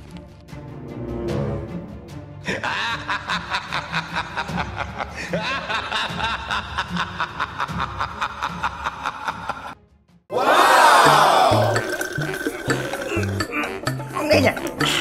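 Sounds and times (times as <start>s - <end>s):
person laughing: 2.5s - 9.8s.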